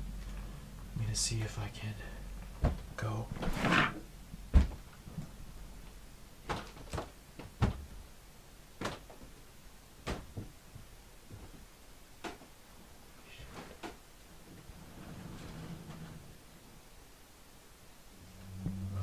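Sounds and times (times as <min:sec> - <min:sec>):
footsteps thudding: 0:02.6 - 0:03.6, 0:04.4 - 0:04.9.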